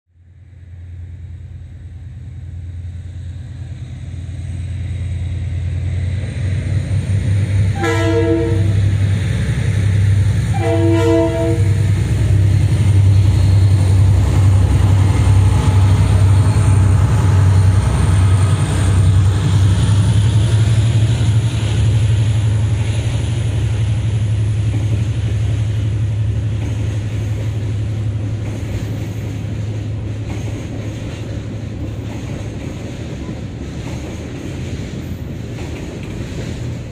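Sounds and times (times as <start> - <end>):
diesel locomotive engine drone: 0.1 - 36.9
train horn: 7.7 - 9.0, 10.5 - 12.0.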